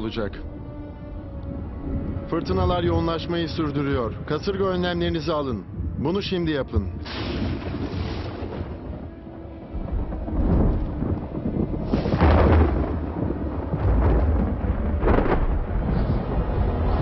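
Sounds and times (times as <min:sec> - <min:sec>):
thunder rumbling: 0:06.8 - 0:17.0
loud thunder peal: 0:07.0 - 0:17.0.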